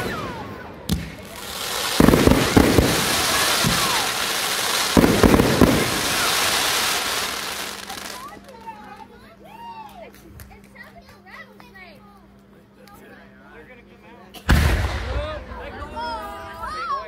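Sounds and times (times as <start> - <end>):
fireworks booming: 0.0 - 8.4, 14.5 - 15.6
crackling hiss of fireworks: 0.0 - 10.7, 14.5 - 15.5.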